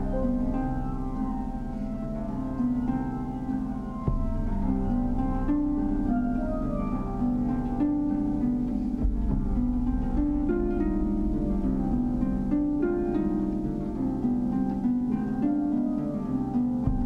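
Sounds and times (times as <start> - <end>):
harp plucked notes: 0.0 - 17.0
low sustained rumble: 3.8 - 14.8.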